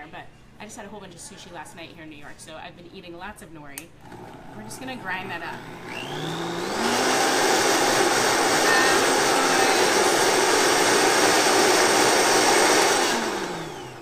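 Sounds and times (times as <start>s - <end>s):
blender grinding: 4.0s - 14.0s
motor winding down whine: 5.6s - 14.0s.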